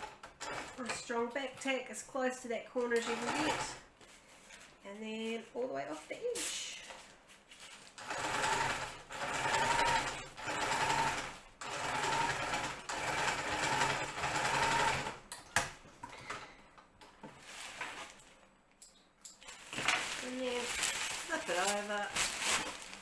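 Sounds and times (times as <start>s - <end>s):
sewing machine stitching: 2.9s - 3.8s, 8.0s - 15.2s
fabric rustling: 17.2s - 18.4s, 19.4s - 23.0s.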